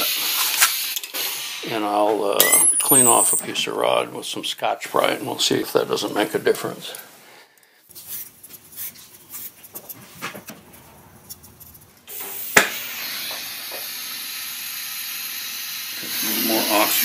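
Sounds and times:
torch flame hissing: 0.0 - 2.1, 12.1 - 17.0
gas hissing: 0.0 - 3.9, 12.0 - 17.0
torch lighting pop: 12.1 - 13.9.

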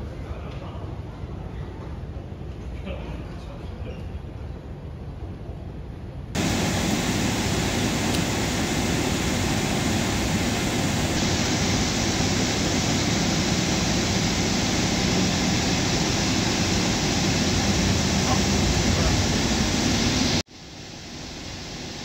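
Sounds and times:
deep rumble: 6.4 - 20.4
steady rushing noise: 6.4 - 22.0.

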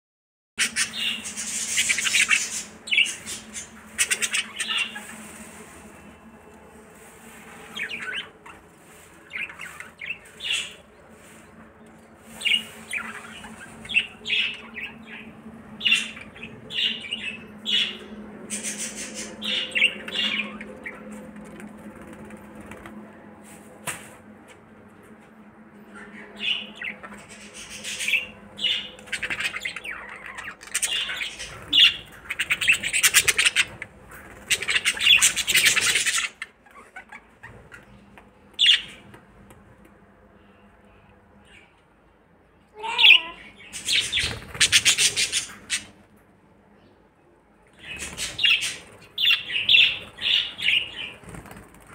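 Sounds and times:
budgerigars chattering: 0.6 - 5.2
wing flapping: 20.7 - 23.2, 44.0 - 45.8, 50.8 - 51.9.

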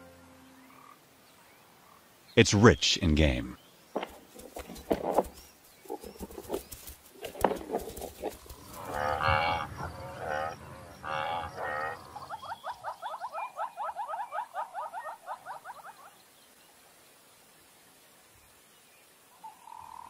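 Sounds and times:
buffalo tearing grass: 4.1 - 9.3
buffalo lowing: 7.2 - 12.7.

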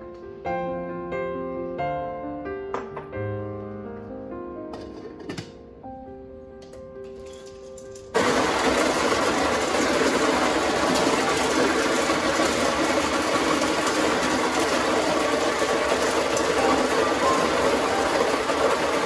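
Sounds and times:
coffee grinder grinding beans: 8.0 - 19.0.

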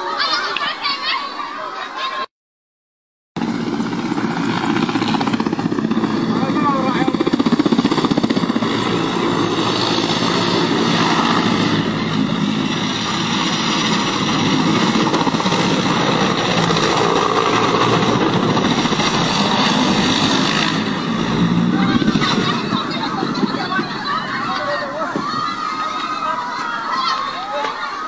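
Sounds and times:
engine pulsing: 3.4 - 24.3.

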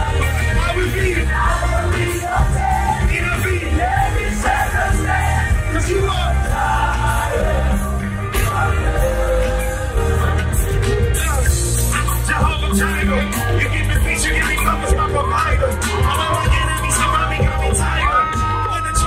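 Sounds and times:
live band with heavy bass: 0.0 - 19.0
man singing into microphone: 11.1 - 19.0.

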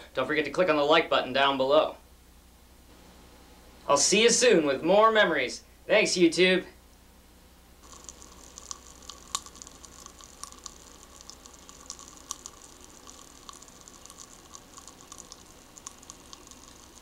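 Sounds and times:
popping candy crackling: 7.8 - 17.0.

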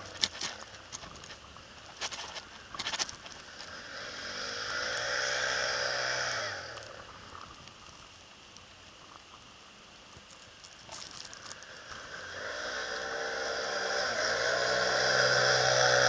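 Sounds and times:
atv engine passing by: 3.7 - 6.8, 12.0 - 16.0.

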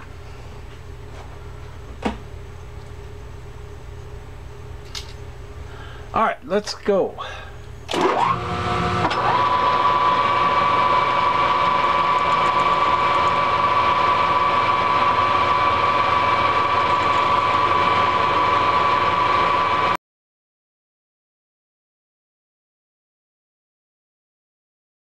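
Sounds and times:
metal lathe running with high whine: 7.9 - 20.0.

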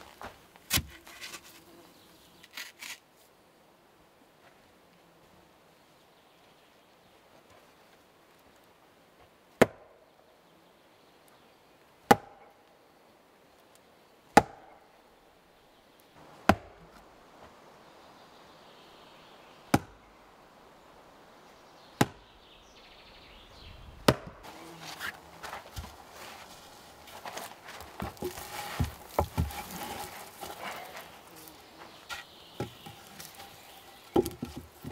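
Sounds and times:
footsteps on sandy soil: 0.0 - 1.8, 24.2 - 34.9
hand tool chopping strikes: 12.1 - 12.4, 14.4 - 14.7.

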